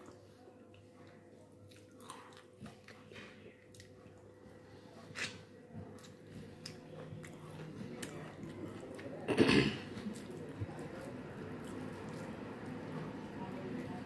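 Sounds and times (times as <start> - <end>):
person chewing: 1.7 - 10.4.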